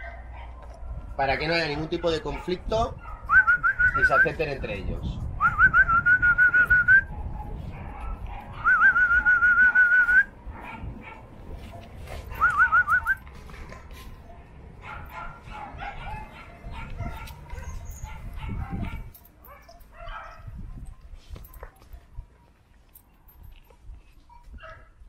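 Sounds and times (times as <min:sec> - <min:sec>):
dog whining: 0:17.0 - 0:19.0.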